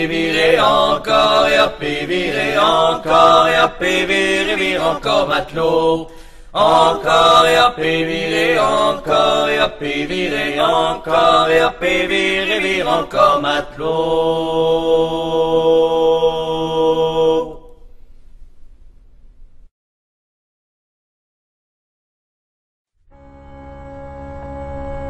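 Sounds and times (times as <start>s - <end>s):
traditional folk music: 23.1s - 25.0s.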